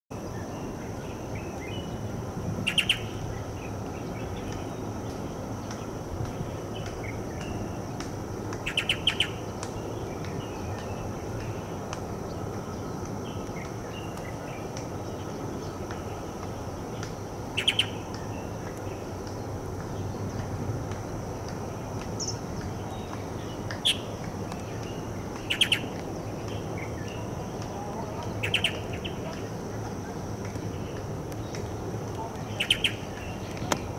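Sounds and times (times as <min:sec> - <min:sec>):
bird chirping call: 0:02.6 - 0:05.8, 0:08.6 - 0:11.7, 0:17.0 - 0:19.0, 0:22.2 - 0:29.6, 0:32.2 - 0:33.9.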